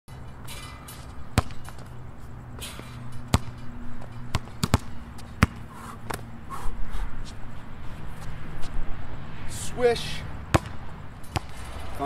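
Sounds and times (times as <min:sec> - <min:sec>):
basketball bouncing on hard court: 0:01.3 - 0:01.9, 0:02.7 - 0:06.2, 0:10.5 - 0:11.6.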